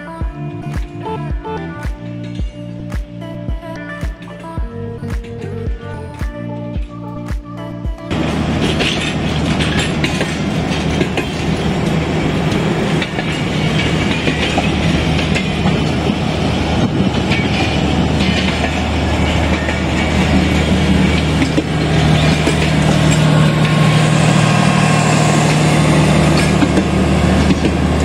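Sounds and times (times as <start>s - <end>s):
train wheels clattering on rails: 8.1s - 28.0s.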